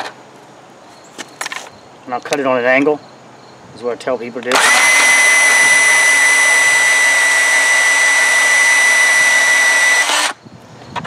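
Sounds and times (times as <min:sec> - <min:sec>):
band saw cutting steel: 0:04.5 - 0:10.4.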